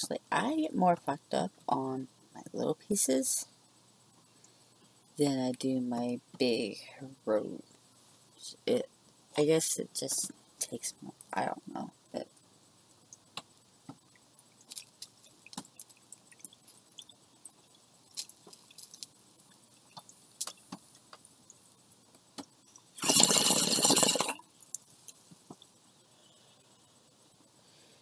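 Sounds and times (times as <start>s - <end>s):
water bubbling in bong: 22.8s - 24.6s
loud rush of bubbling water: 23.0s - 24.4s.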